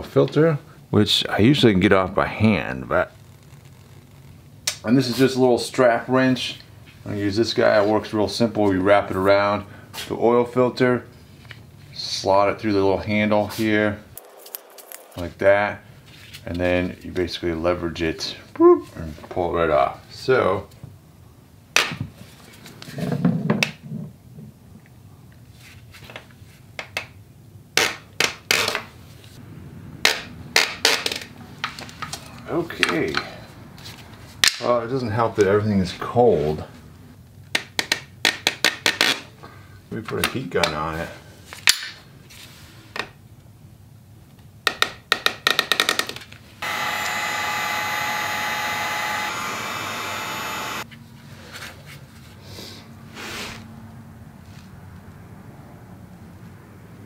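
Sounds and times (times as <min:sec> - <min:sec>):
heat gun hissing and whining: 0:46.6 - 0:50.8.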